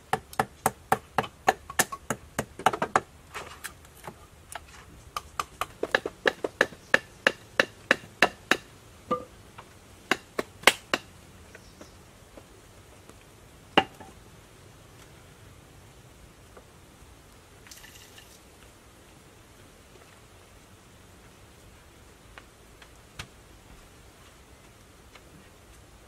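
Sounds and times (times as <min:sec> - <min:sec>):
knife chopping bamboo: 0:00.1 - 0:03.1.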